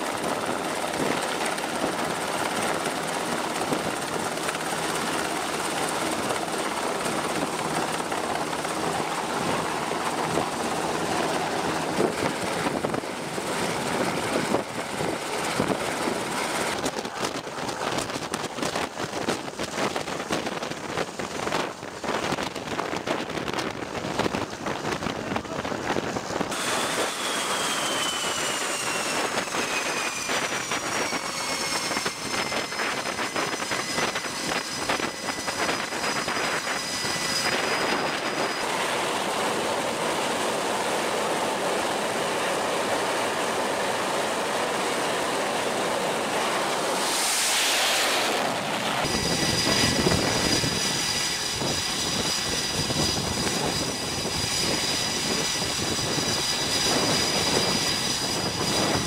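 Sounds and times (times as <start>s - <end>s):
jet engine whine: 0.0s - 59.0s
brief loud rush: 46.9s - 48.7s.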